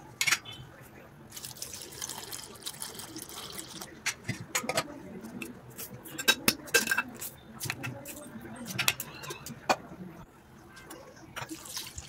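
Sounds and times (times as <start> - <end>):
milk pouring into a metal bowl: 1.3 - 3.9.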